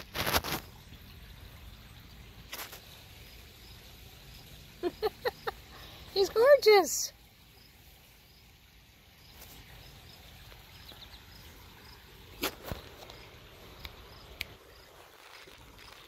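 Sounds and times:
high insect chirps: 0:02.6 - 0:08.5, 0:09.2 - 0:16.0.

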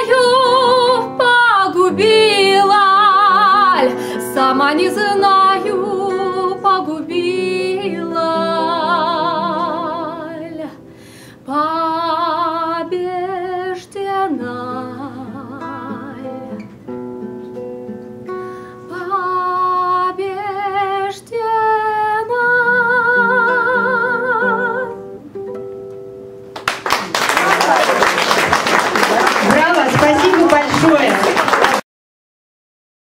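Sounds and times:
woman singing with vibrato: 0:00.0 - 0:16.7, 0:18.9 - 0:25.2
fingerpicked classical guitar: 0:00.0 - 0:26.6.

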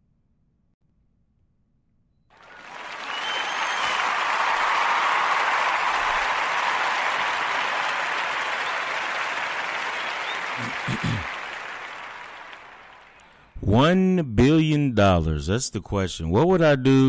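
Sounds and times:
applause: 0:02.3 - 0:13.5.

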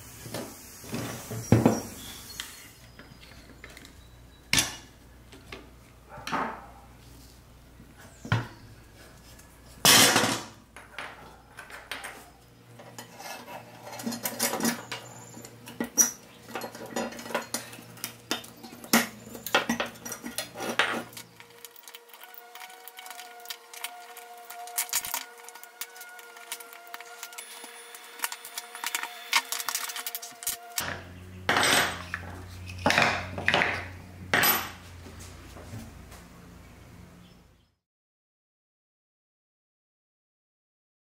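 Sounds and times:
metal toy parts clinking: 0:16.0 - 0:33.2.

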